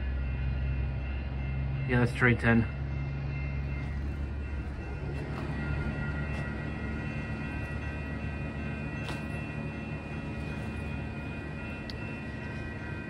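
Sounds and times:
train engine rumble: 0.0 - 13.0.

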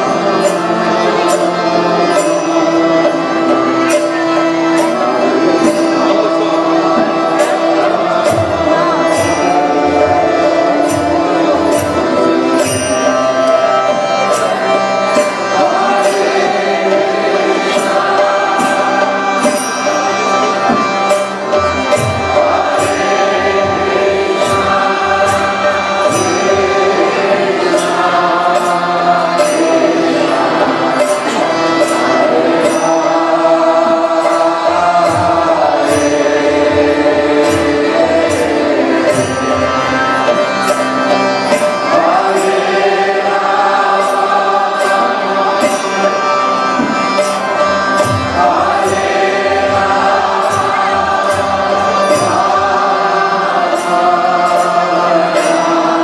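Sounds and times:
hand cymbals striking: 0.0 - 56.0
harmonium: 0.0 - 56.0
group of voices chanting: 48.2 - 56.0.

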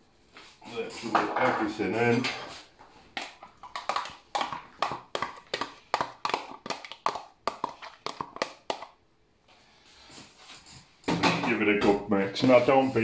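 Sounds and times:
plastic tub tapping: 3.2 - 8.9.

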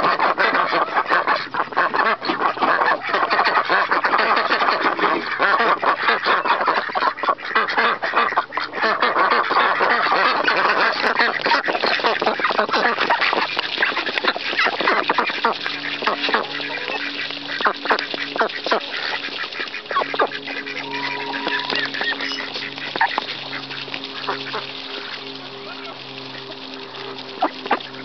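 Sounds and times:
ducks quacking: 0.0 - 28.0
bills clicking through grain: 9.3 - 28.0.

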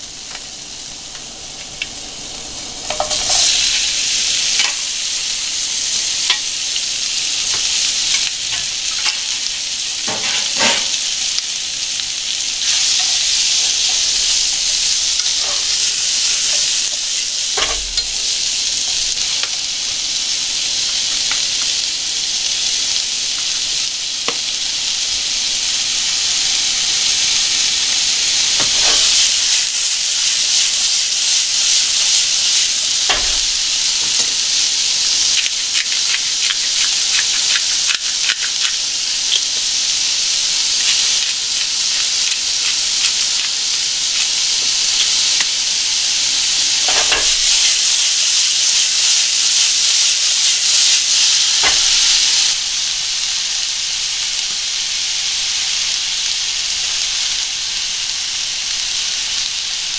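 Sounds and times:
onions and sausage sizzling: 0.0 - 59.9
pan knocking on burner: 2.9 - 3.6, 17.6 - 18.3, 33.1 - 33.6, 46.9 - 47.5, 51.6 - 52.0
sharp stirring clicks: 35.4 - 39.4.

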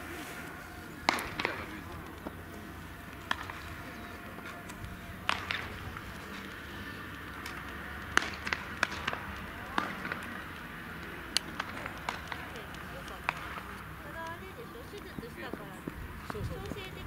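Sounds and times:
open-air background noise: 0.0 - 17.0
sharp short cracks: 1.0 - 2.3.

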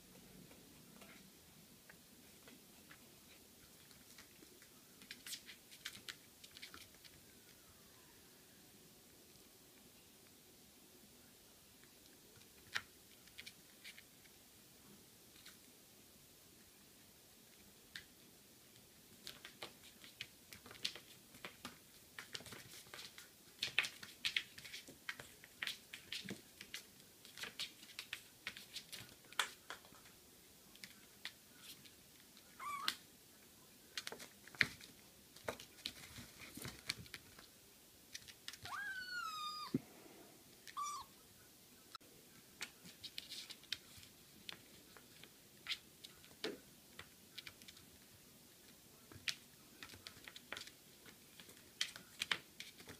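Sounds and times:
kitten meowing: 32.6 - 33.0, 38.6 - 39.8, 40.7 - 41.2.

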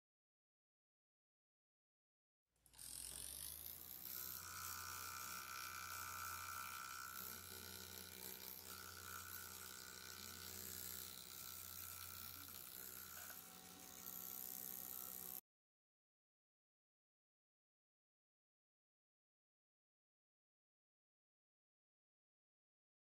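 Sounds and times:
small electric motor whirring: 2.6 - 15.4.

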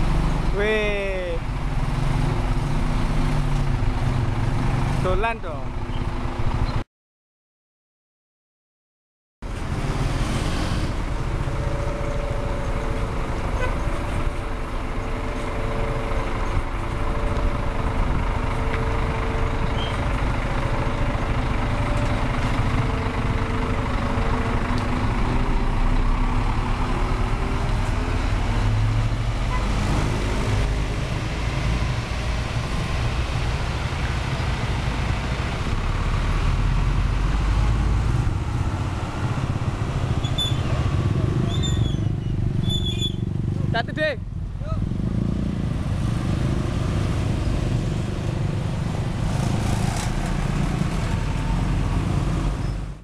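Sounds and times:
bus engine running: 9.4 - 53.0
multi-tone bus horn: 11.5 - 17.7, 29.5 - 29.9.

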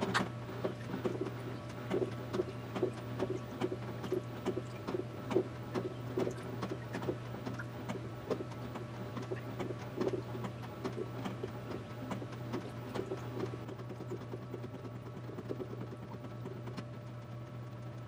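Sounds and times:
water sloshing and splashing: 0.0 - 14.4
washing machine motor hum: 0.0 - 18.0.

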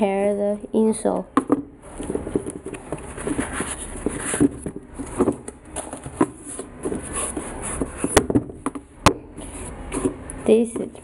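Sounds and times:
fabric and foam rustling: 1.8 - 8.3.

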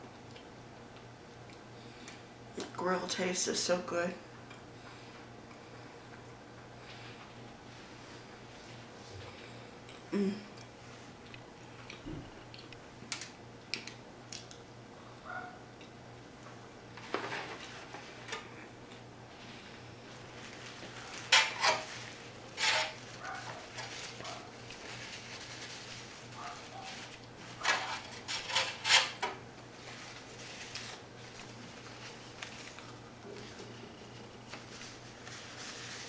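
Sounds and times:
paper napkin crinkling: 19.5 - 28.8, 29.7 - 36.0.

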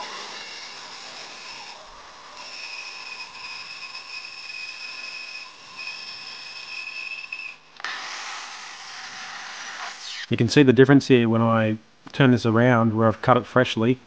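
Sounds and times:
bandsaw cutting wood: 0.0 - 10.3.

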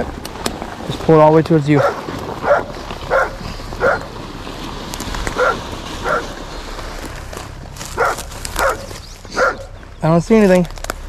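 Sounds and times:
outdoor background noise: 0.0 - 11.0
dog barking: 1.8 - 4.1, 5.4 - 6.3, 8.0 - 9.8.

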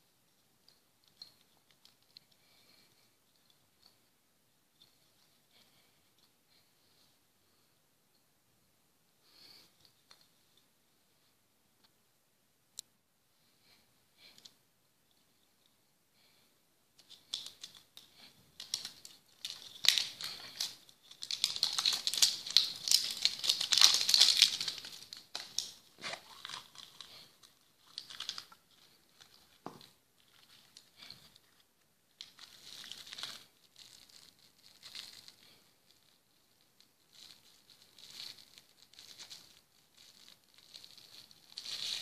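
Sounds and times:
plastic wrapper crinkling: 17.0 - 42.0.

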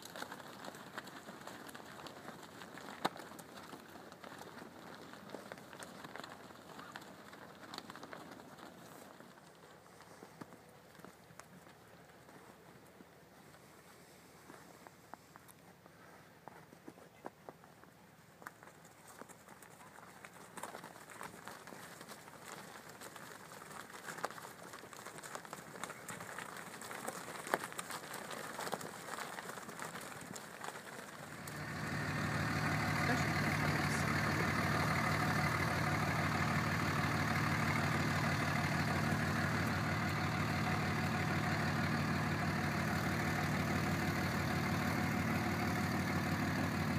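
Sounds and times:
light crunches and clicks: 16.4 - 46.9
engine idling: 31.1 - 46.9.

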